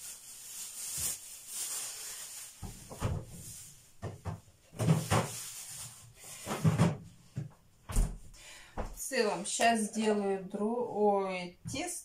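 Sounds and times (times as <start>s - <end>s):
plastic bag crinkling: 0.0s - 4.0s, 4.8s - 6.4s
knocks and thumps in freezer: 2.6s - 5.5s, 6.3s - 8.2s.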